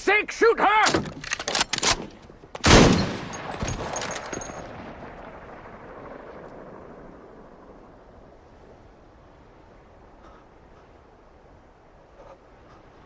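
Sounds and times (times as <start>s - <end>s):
weaker gunshot crack: 2.6s - 3.6s
loud gunshot echoing: 2.6s - 4.0s.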